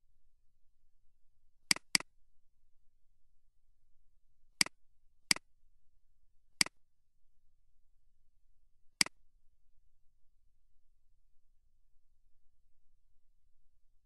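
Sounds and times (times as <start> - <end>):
computer mouse clicking: 1.7 - 2.1.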